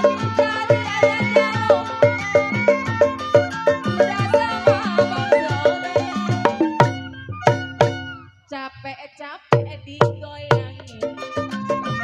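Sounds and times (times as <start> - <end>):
drum and struck-key beats: 0.0 - 8.3, 9.6 - 12.0
high wavering melody: 0.0 - 8.4.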